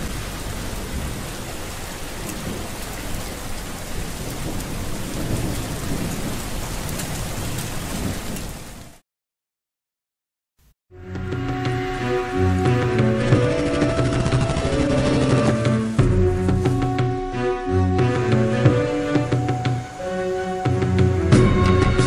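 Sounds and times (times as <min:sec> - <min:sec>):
low rumble of thunder: 0:00.0 - 0:08.8
steady rainfall: 0:00.0 - 0:09.0, 0:11.2 - 0:22.0.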